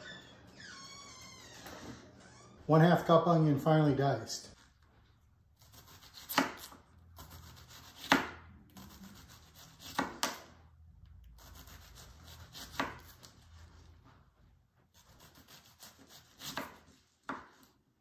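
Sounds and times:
knife cutting and scraping onion: 5.6 - 10.6, 11.2 - 13.9, 14.9 - 17.8.

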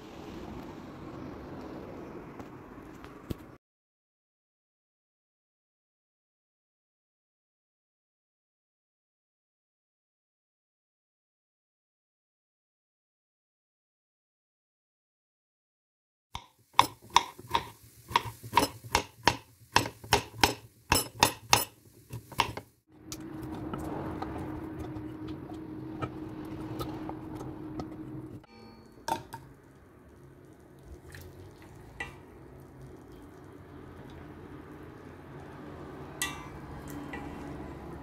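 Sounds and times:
rushing noise with low hum: 0.0 - 3.6, 23.0 - 28.4
knife chopping on wooden board: 16.4 - 22.6.

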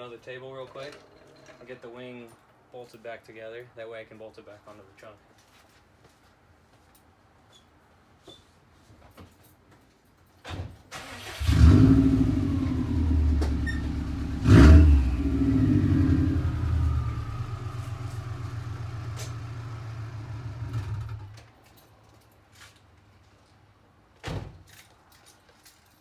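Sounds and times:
car engine starting and revving: 10.9 - 21.3.

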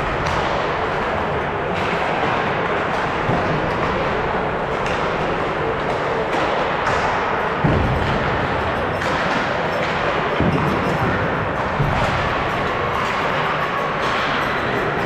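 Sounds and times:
din of hockey play: 0.0 - 15.0.

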